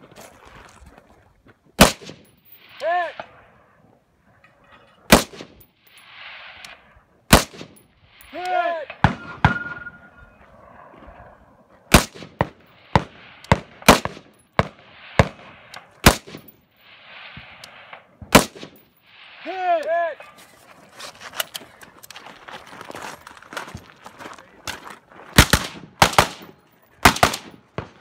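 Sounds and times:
rifle shots: 0:01.8 - 0:02.3, 0:05.1 - 0:05.6, 0:07.3 - 0:07.8, 0:08.9 - 0:10.1, 0:11.9 - 0:16.5, 0:17.4 - 0:18.9, 0:25.4 - 0:28.0
high ringing tone: 0:09.2 - 0:10.5.

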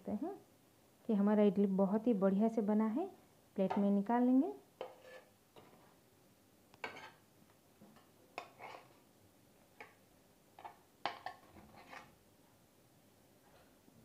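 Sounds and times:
metal spoon scraping metal plate: 0:04.8 - 0:05.3, 0:08.5 - 0:08.9, 0:11.7 - 0:12.1.

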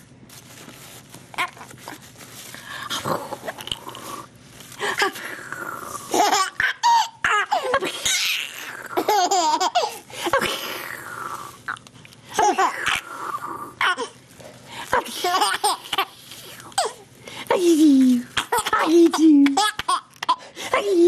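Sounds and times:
baby laughing: 0:06.1 - 0:10.0, 0:12.3 - 0:13.0, 0:15.0 - 0:16.2, 0:18.4 - 0:20.5.

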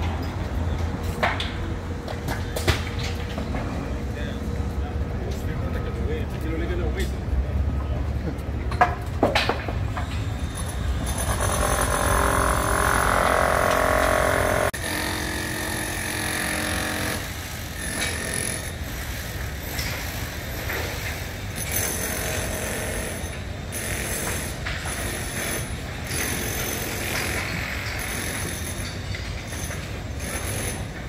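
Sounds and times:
loud multi-tone machine whine: 0:10.1 - 0:30.9.

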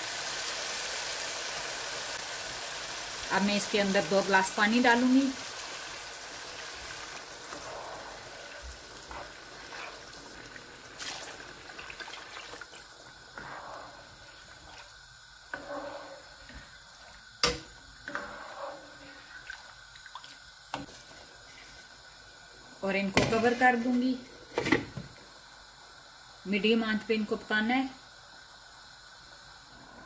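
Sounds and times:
water pouring into a pan: 0:04.8 - 0:13.1.

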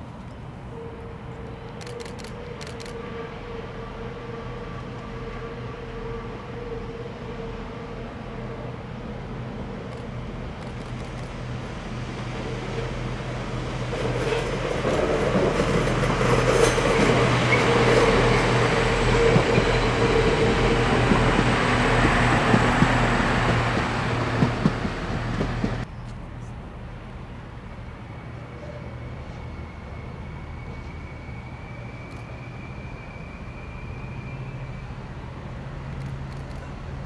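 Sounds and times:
diesel train engines droning: 0:00.0 - 0:37.0
train wheels running on rails: 0:01.4 - 0:03.5, 0:09.6 - 0:26.2.

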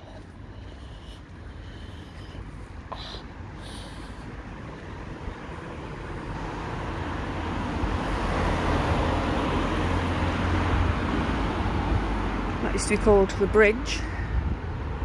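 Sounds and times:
car passing close: 0:03.9 - 0:13.2.

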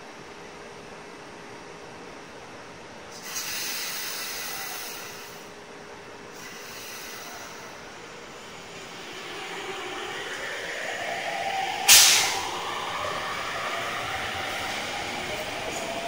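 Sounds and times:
air brake hiss: 0:03.1 - 0:05.6, 0:06.3 - 0:15.1
train traction motors whining: 0:06.4 - 0:16.0.

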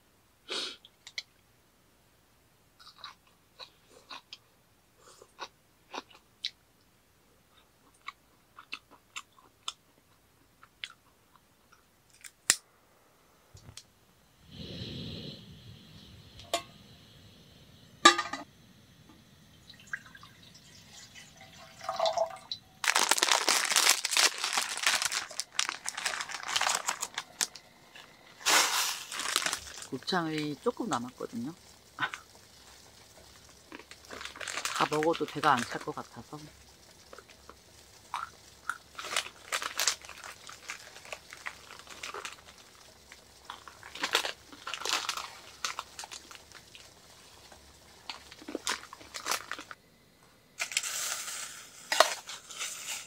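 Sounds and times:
person chewing crunchy food: 0:02.8 - 0:04.4, 0:05.0 - 0:06.6, 0:07.5 - 0:11.4, 0:22.8 - 0:29.9, 0:32.0 - 0:34.8, 0:37.0 - 0:47.0, 0:48.0 - 0:49.7
gas burner hissing: 0:14.2 - 0:21.4, 0:25.2 - 0:49.8, 0:50.6 - 0:53.0
foil packet crinkling: 0:22.8 - 0:49.8, 0:50.6 - 0:53.0.

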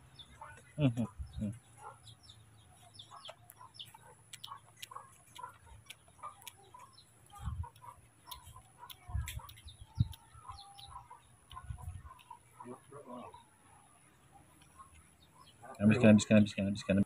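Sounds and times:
faint bird chirps: 0:00.0 - 0:17.0
clucking fowl: 0:02.8 - 0:16.2
ticking clicks: 0:03.3 - 0:12.5.

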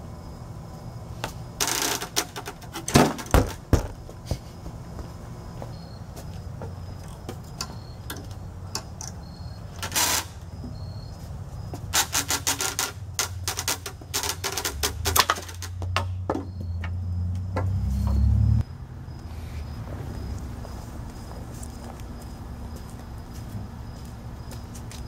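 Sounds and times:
low rumble: 0:17.0 - 0:23.9.

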